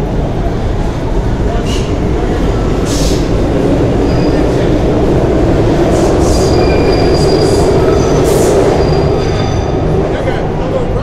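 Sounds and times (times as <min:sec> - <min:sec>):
subway train rumble: 0:00.0 - 0:11.0
high wheel squeals: 0:02.9 - 0:10.0.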